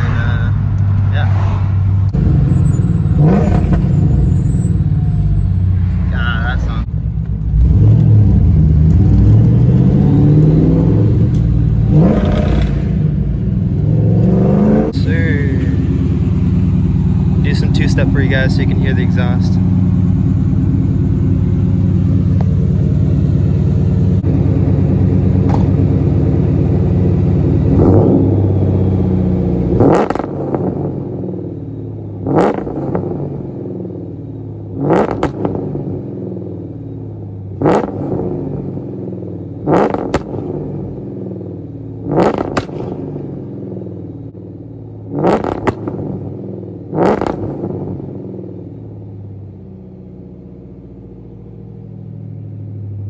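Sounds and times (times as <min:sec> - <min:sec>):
engine idling with throttle blips: 0:14.8 - 0:53.0.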